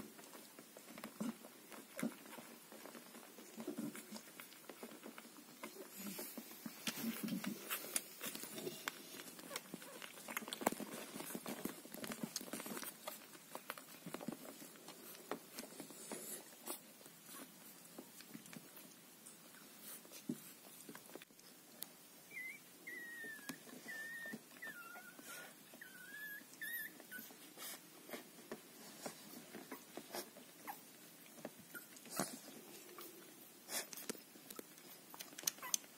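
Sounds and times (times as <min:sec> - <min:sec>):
puppies suckling and smacking: 0:00.0 - 0:35.9
puppy squeaking: 0:22.3 - 0:25.2, 0:25.8 - 0:27.3.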